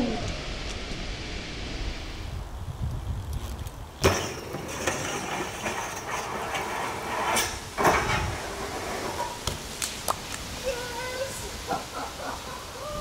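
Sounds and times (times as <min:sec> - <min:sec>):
bike landing on path: 0:03.4 - 0:06.1
bike clanking on metal rail: 0:04.0 - 0:09.4
pegs grinding on metal rail: 0:04.0 - 0:09.4.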